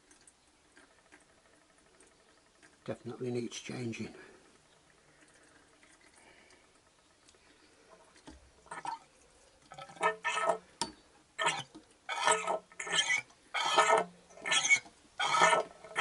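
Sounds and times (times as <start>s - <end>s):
oil and air gurgling out of fork: 9.7s - 10.7s, 11.4s - 16.0s.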